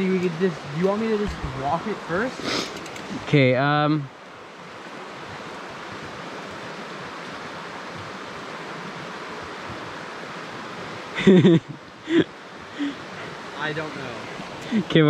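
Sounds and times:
flowing water rushing: 0:00.0 - 0:15.0.

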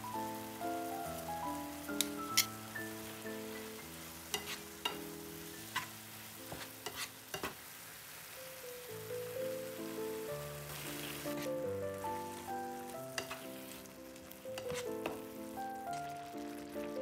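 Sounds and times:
soft background music: 0:00.0 - 0:07.1, 0:08.4 - 0:17.0
vegetables sizzling in pan: 0:00.0 - 0:17.0
utensils tapping and scraping pan: 0:01.9 - 0:02.6, 0:03.6 - 0:07.6, 0:10.8 - 0:11.6, 0:13.1 - 0:13.8, 0:14.5 - 0:16.1.

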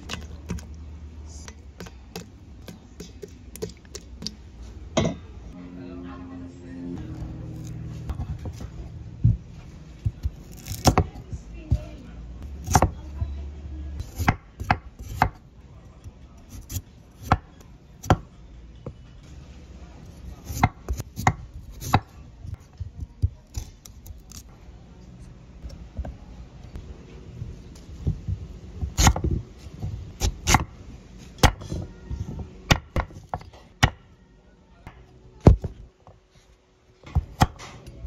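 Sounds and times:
knife cutting sweet potato: 0:10.0 - 0:13.0, 0:14.0 - 0:15.4, 0:20.2 - 0:24.5, 0:28.1 - 0:29.3.

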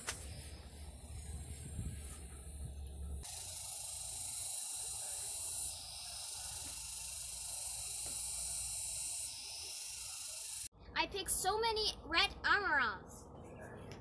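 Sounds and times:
high-pitched hiss: 0:03.2 - 0:10.7.

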